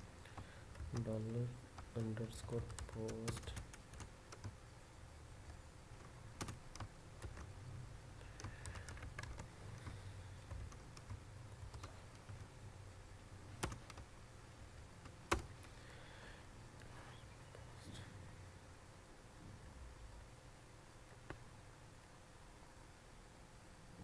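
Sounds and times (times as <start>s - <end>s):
keyboard typing: 0.2s - 4.6s, 5.4s - 7.6s, 8.2s - 12.5s, 13.6s - 14.1s, 15.0s - 15.7s.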